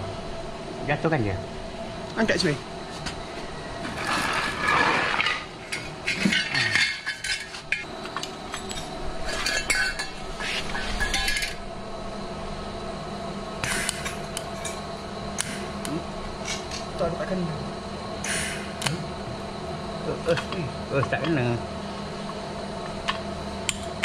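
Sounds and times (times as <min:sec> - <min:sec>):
steel parts clinking and clanking: 0:04.6 - 0:10.2, 0:10.9 - 0:11.6.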